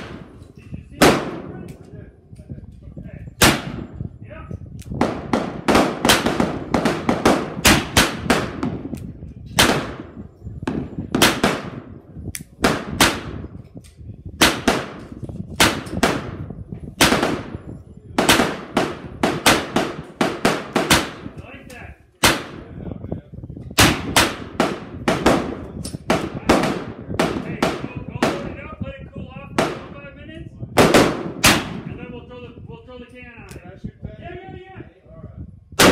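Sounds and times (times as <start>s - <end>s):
gunshots with ringing echo: 1.0s - 1.6s, 3.4s - 4.0s, 5.0s - 8.9s, 9.6s - 12.0s, 12.6s - 13.5s, 14.4s - 21.4s, 22.2s - 22.7s, 23.8s - 28.6s, 30.8s - 32.0s.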